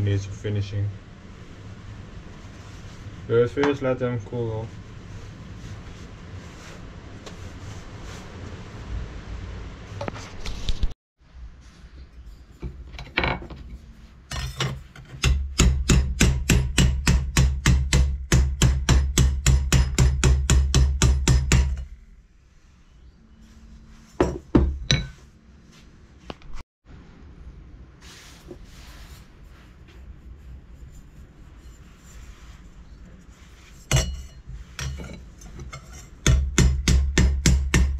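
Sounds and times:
hammer striking sheet steel: 15.1s - 21.8s, 36.2s - 37.9s.

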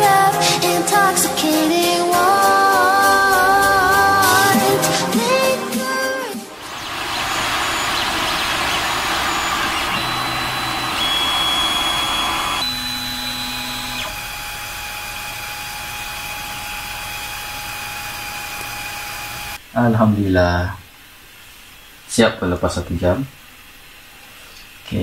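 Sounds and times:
stepper motor tones: 3.3s - 4.9s, 6.6s - 19.6s
printer fan whir: 6.6s - 19.6s.

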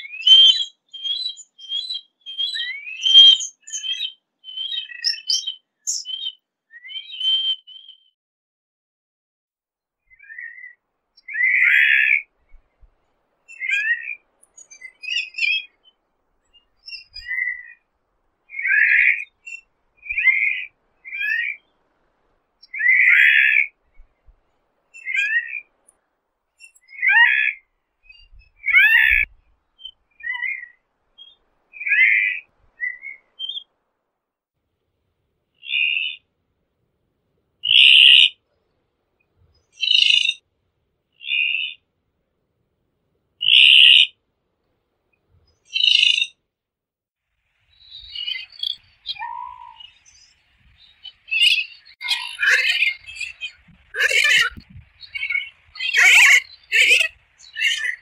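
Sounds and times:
high thin whistled bird calls: 0.0s - 8.2s, 10.1s - 12.8s, 13.5s - 17.9s, 18.5s - 21.8s, 22.6s - 24.3s, 24.9s - 25.7s, 26.6s - 33.7s, 37.6s - 38.4s, 39.5s - 40.4s, 43.4s - 44.1s, 45.4s - 46.4s, 47.7s - 58.0s
short low bird calls: 18.5s - 21.8s, 22.6s - 24.2s, 26.8s - 33.6s, 37.6s - 38.4s, 43.4s - 44.1s, 47.8s - 58.0s.

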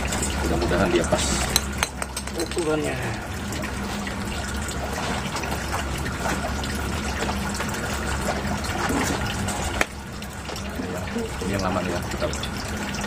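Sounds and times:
pond pump humming: 0.0s - 13.0s
water running and splashing: 0.0s - 13.0s.

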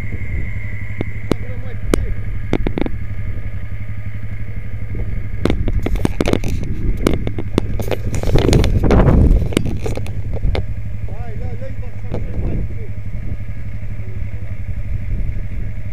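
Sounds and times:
atv engine running: 0.0s - 15.9s
rush of noise: 0.0s - 15.9s
knocks and clatter: 1.0s - 3.0s, 5.4s - 10.8s.

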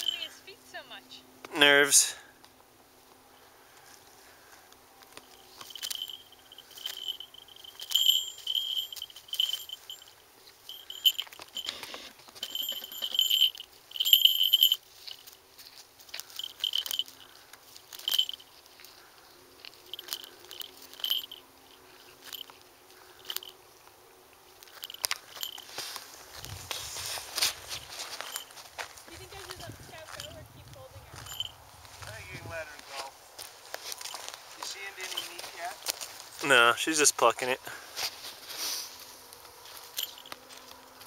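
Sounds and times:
bell jingling: 0.0s - 0.5s, 5.2s - 23.6s, 24.6s - 32.5s, 33.8s - 37.8s, 39.7s - 40.9s.

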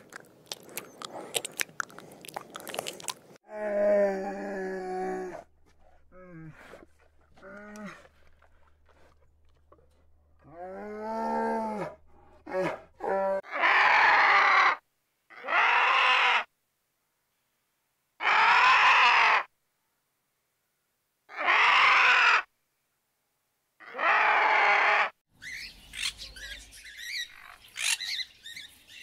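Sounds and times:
animal calling harshly: 12.6s - 16.5s, 18.2s - 19.5s, 21.3s - 22.5s.

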